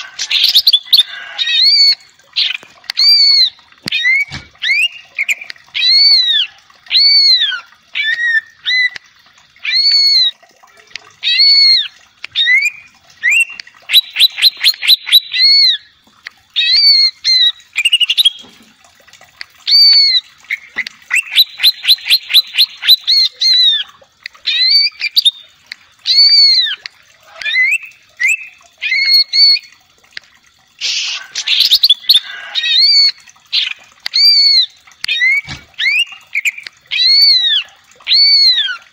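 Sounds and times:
bird trills: 19.7s - 23.9s
bird singing whistled phrases: 32.8s - 38.8s.

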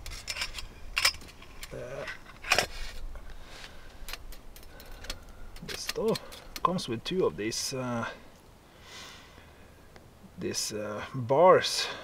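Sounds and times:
metal bars clinking on metal: 0.0s - 2.6s.

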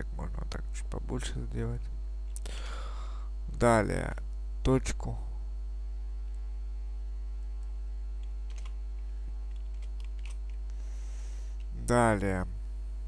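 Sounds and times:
electrical mains hum: 0.0s - 13.0s
faint keyboard clicks: 7.5s - 8.8s, 9.4s - 10.6s.

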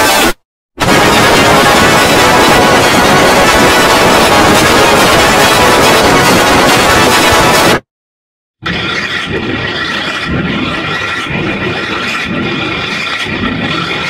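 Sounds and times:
droning high tones: 0.0s - 7.7s
loud harsh noise: 0.0s - 7.9s
pulsing low rumble: 0.8s - 7.8s.

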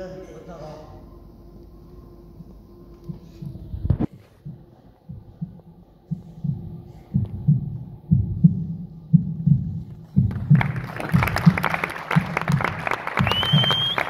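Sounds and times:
heartbeat thumps: 1.8s - 14.0s
audience applause: 10.3s - 14.0s.

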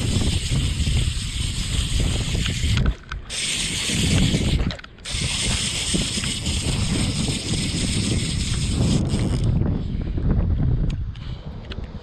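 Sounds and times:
fishing reel clicking: 0.0s - 9.6s
wind noise on microphone: 0.0s - 12.0s.

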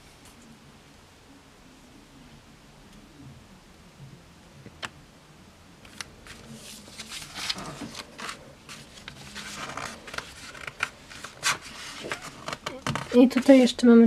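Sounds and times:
magazine pages rustling: 5.8s - 13.6s.

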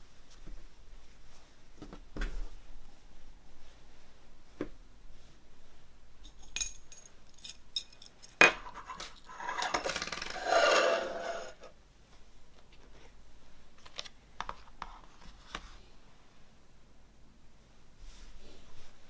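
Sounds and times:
keychain metallic clinks: 6.3s - 8.4s.

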